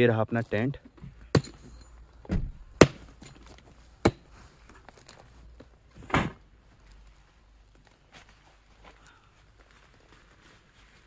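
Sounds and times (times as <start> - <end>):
hatchet chopping log: 1.3 - 1.6, 2.8 - 3.3, 4.0 - 4.3.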